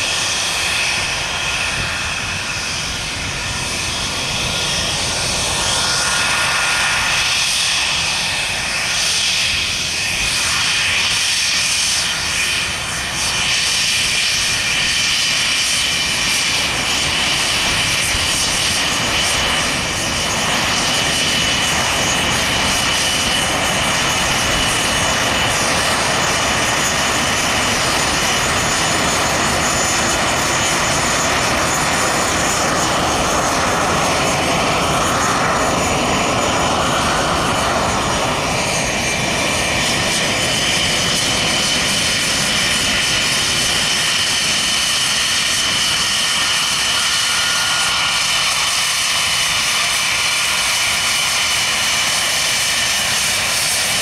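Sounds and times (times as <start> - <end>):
jet engines running: 0.0 - 54.0.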